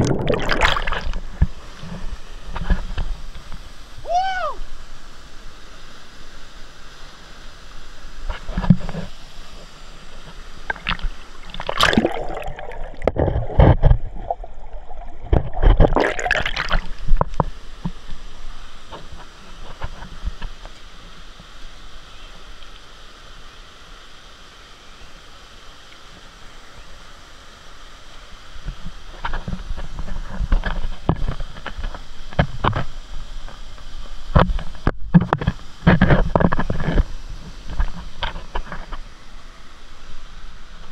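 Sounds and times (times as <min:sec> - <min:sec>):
waterfall rushing: 0:03.7 - 0:06.3.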